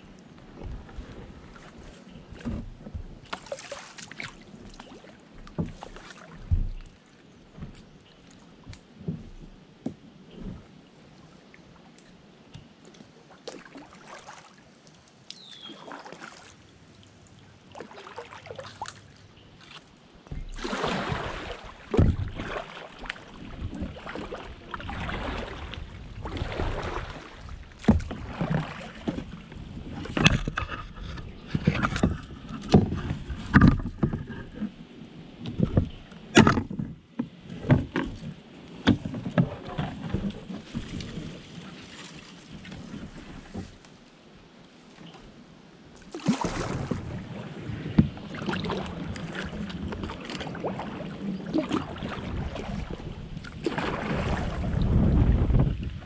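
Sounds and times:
kayak paddle splashing: 0.0s - 9.6s, 12.7s - 56.0s
paddle knocking: 0.5s - 7.9s, 19.6s - 34.7s, 35.4s - 41.4s.

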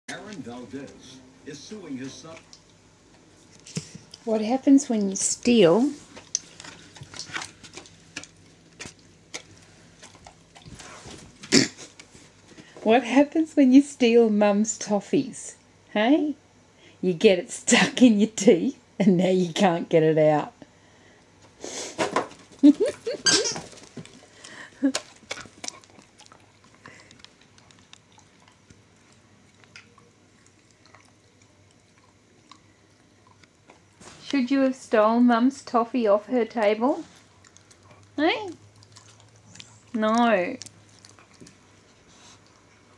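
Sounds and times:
dog chewing and smacking jaws: 6.1s - 12.4s, 23.5s - 34.3s, 37.0s - 42.9s.

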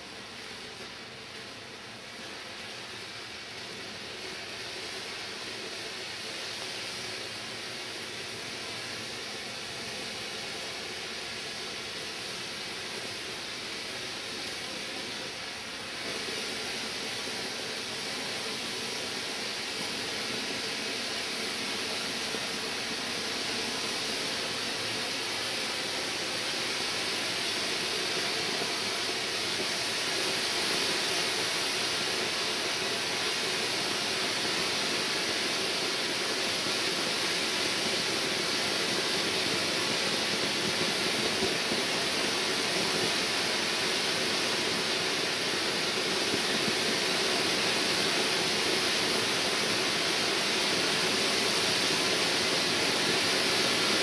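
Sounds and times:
firework fountain hissing sparks: 0.0s - 54.0s.

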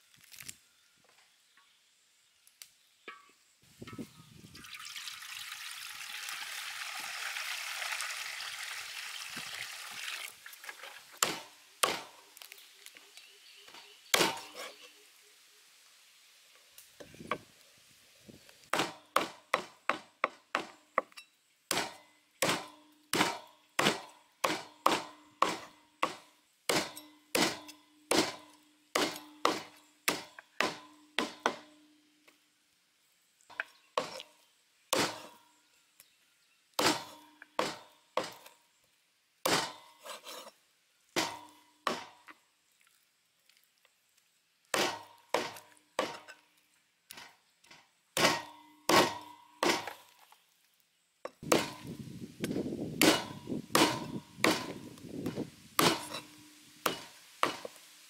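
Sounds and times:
meat cleaver chopping through bone: 53.0s - 54.8s.

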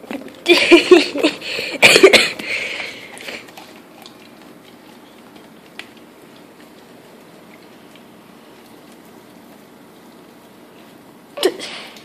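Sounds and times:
dog licking: 2.8s - 11.3s.

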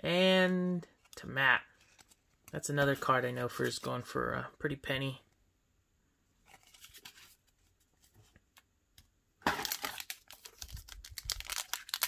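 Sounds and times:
foil wrapper crinkling: 9.5s - 12.0s.

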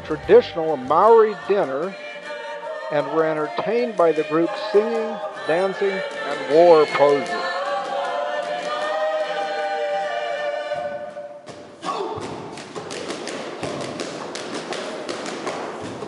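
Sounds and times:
group singing a held chord: 0.0s - 11.4s
slaps and stamps: 12.2s - 16.0s.

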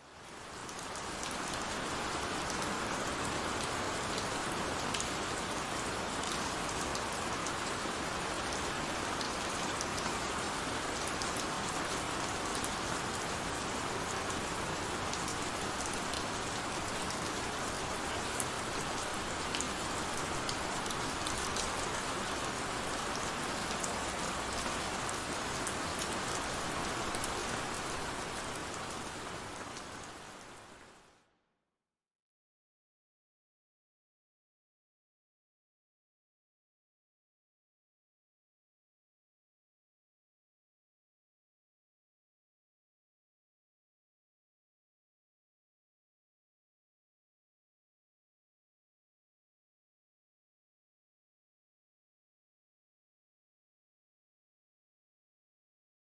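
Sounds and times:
heavy rain: 0.0s - 31.3s.

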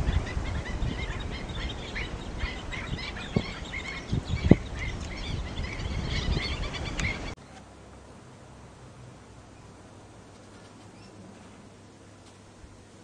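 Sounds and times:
birds chirping: 0.0s - 7.7s, 9.5s - 11.4s.

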